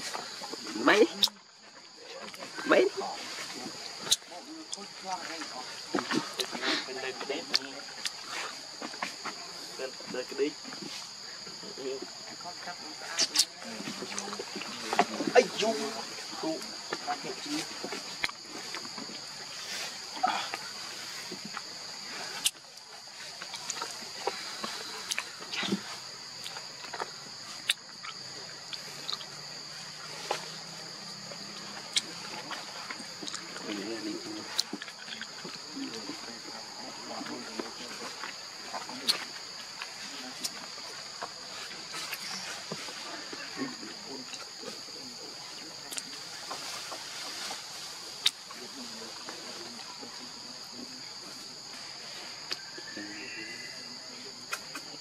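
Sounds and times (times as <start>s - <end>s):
high-pitched insect chorus: 0.0s - 55.0s.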